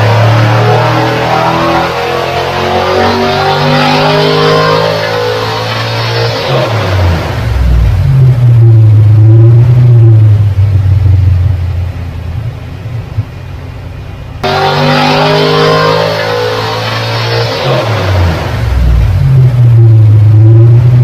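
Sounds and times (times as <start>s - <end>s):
engine running on a dyno: 0.0s - 21.0s.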